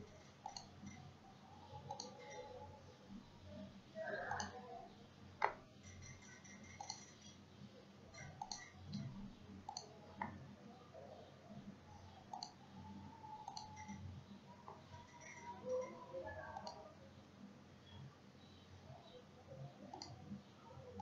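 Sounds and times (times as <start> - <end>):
computer mouse clicks: 0.1 - 1.1, 1.8 - 2.5, 5.4 - 7.4, 8.1 - 10.4, 12.3 - 12.6, 13.4 - 14.1, 16.6 - 16.8, 19.8 - 20.2.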